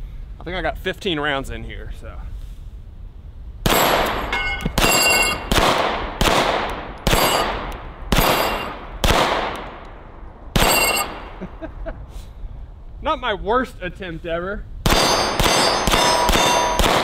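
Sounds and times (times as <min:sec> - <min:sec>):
pistol shots: 0:03.6 - 0:09.7, 0:10.6 - 0:11.3, 0:14.8 - 0:17.0
steel plate ringing: 0:03.9 - 0:05.5, 0:07.1 - 0:08.8, 0:10.6 - 0:11.3, 0:14.9 - 0:17.0.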